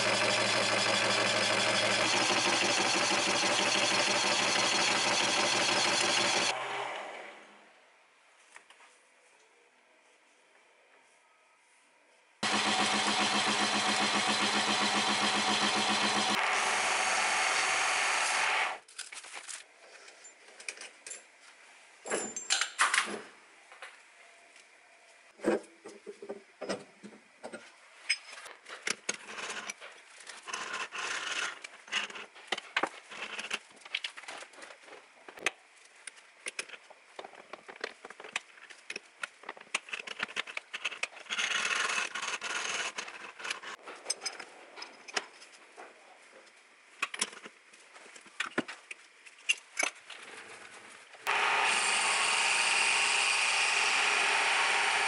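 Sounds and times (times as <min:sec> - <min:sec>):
metal lathe running: 0:00.0 - 0:06.5, 0:12.4 - 0:18.8, 0:51.3 - 0:55.0.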